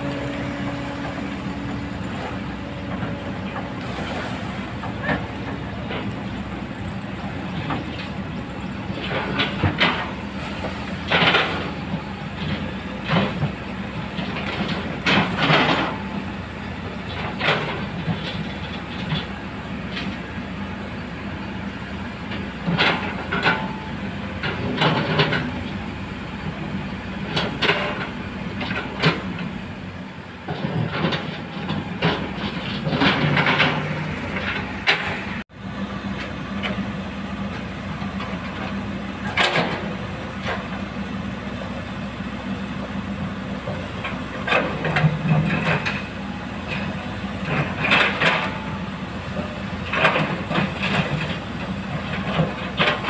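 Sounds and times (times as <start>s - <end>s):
diesel engines running: 0.0s - 53.0s
metallic clanks and rattles: 11.1s - 16.0s, 30.5s - 35.4s, 38.2s - 40.8s, 43.6s - 48.7s.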